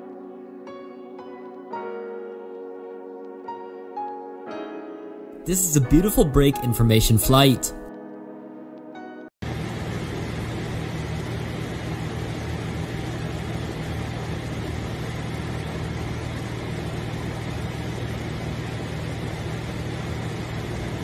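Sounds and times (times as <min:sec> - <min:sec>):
aircraft engine and propeller drone: 0:09.4 - 0:21.0.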